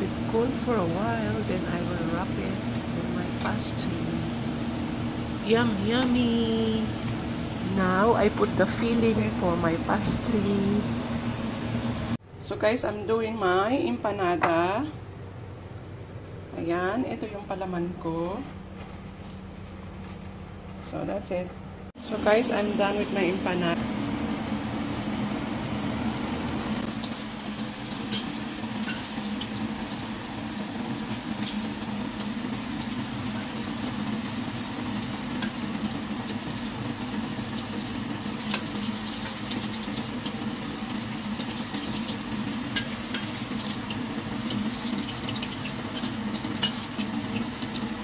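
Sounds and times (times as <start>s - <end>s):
oil sizzling: 22.0s - 48.0s.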